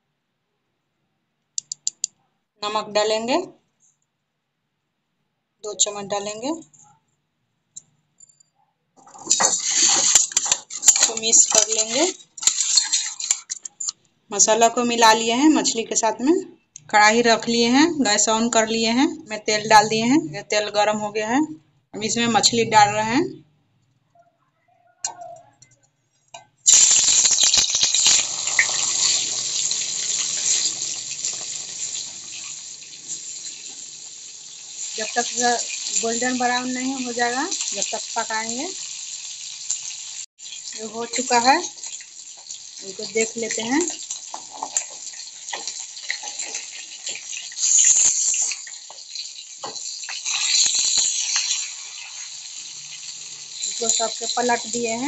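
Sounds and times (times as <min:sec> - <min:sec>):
metal spatula scraping pan: 0:09.1 - 0:13.8
fish sizzling in hot oil: 0:09.2 - 0:13.8, 0:26.6 - 0:55.0.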